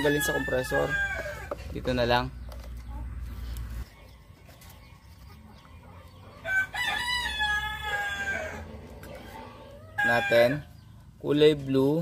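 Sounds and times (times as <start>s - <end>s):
rooster crowing: 0.0s - 1.5s, 6.4s - 8.8s, 9.4s - 10.6s.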